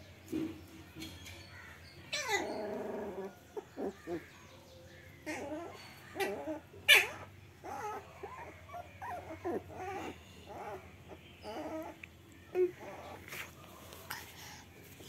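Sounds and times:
puppies whimpering and whining: 1.1s - 14.7s
puppy yelp: 2.1s - 4.2s, 5.2s - 13.5s.

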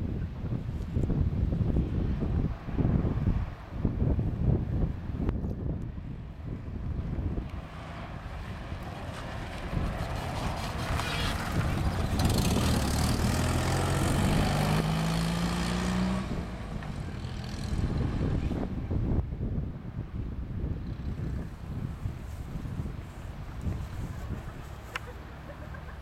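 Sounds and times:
small car engine revving: 8.9s - 18.6s.

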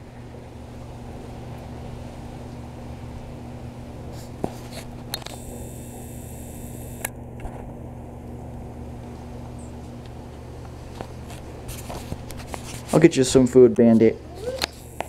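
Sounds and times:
low mechanical hum: 0.0s - 15.0s
sharp clicks: 6.5s - 7.2s.

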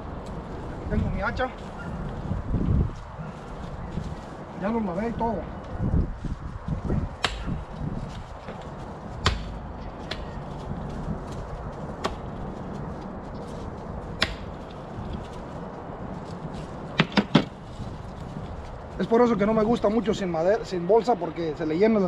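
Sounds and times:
axe chopping bones on wood: 7.2s - 7.5s, 9.2s - 10.3s, 14.2s - 14.5s, 17.0s - 17.5s.

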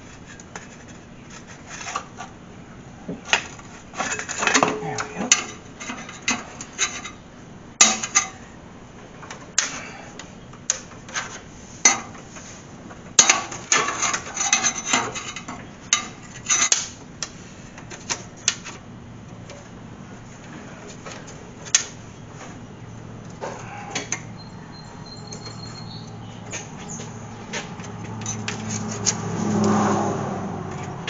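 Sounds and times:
metallic clinks and knocks: 23.9s - 29.2s.

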